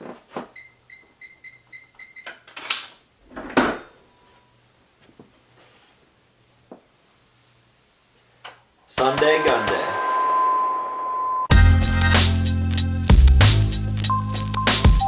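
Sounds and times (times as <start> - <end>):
keypad lock beeps: 0.6 - 2.3.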